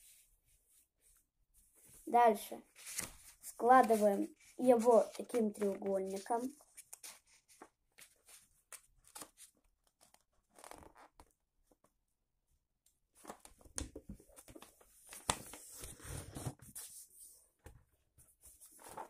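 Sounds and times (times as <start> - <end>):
paper rustling and crinkling: 2.7 - 11.0.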